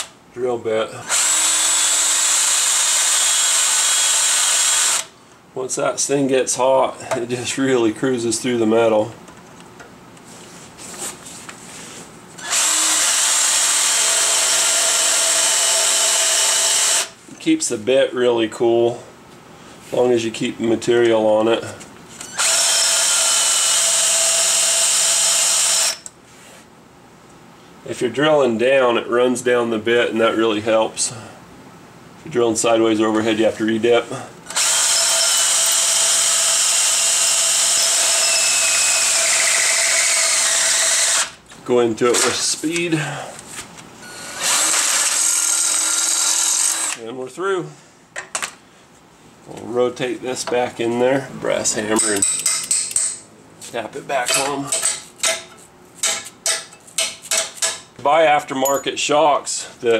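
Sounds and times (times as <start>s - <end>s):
power drill boring through metal: 1.0s - 5.1s, 12.4s - 17.1s, 22.2s - 26.1s, 34.5s - 41.4s, 44.0s - 47.0s.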